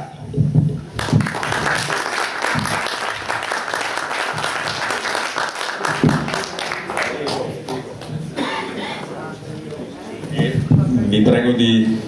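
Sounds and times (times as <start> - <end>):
audience applauding: 1.0 - 8.2.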